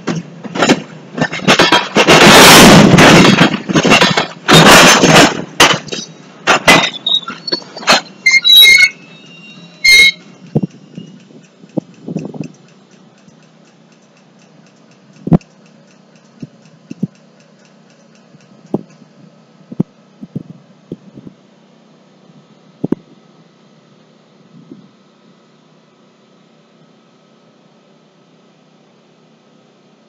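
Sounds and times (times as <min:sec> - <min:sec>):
freight car wheels clanking on rails: 0:00.0 - 0:13.4
high metallic squeal: 0:06.8 - 0:11.3.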